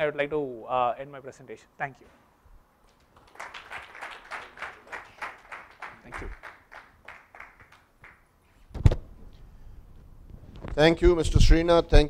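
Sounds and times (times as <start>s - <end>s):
audience clapping: 2.8s - 8.3s.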